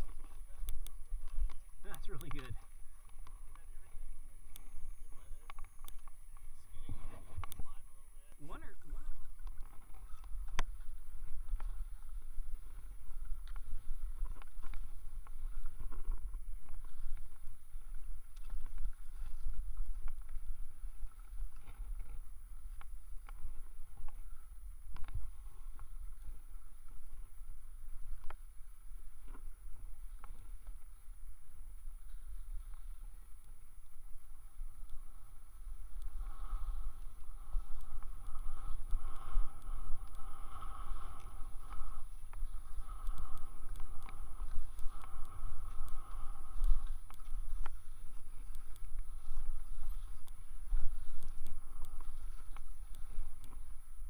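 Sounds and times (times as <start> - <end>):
wind buffeting microphone: 0.0 - 54.0
skis scraping on snow: 8.9 - 54.0.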